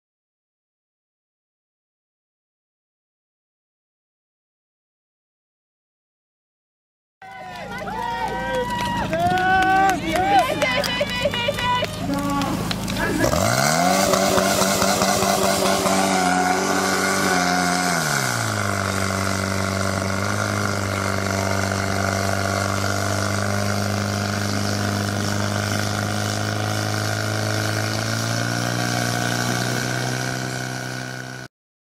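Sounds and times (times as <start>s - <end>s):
fire pump engine running: 7.2s - 31.5s
water spraying from hoses: 12.1s - 31.5s.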